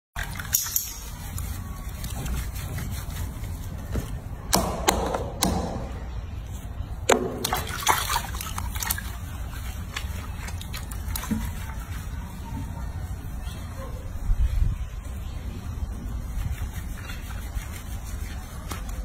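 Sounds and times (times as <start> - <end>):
water splashing in a sink: 0.2 - 3.5, 7.1 - 12.1
hands scrubbing: 0.2 - 4.3, 7.3 - 14.2, 15.8 - 19.0.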